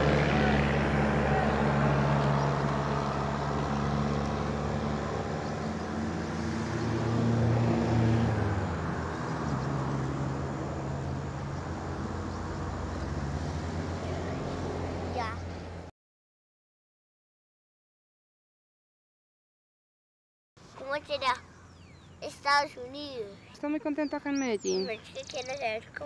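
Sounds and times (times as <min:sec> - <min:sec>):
low outdoor rumble: 0:00.0 - 0:06.0
engine drone: 0:00.0 - 0:15.9.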